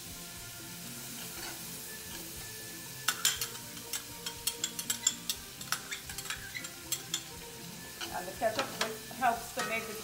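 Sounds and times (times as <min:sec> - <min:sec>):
faint sizzle of frying: 0:00.0 - 0:10.0
spoon scraping a metal pot: 0:01.2 - 0:02.4, 0:03.0 - 0:08.9.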